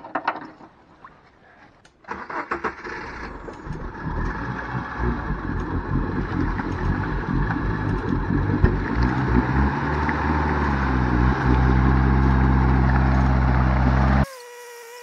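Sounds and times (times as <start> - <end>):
car engine straining at full throttle: 2.4 - 14.2.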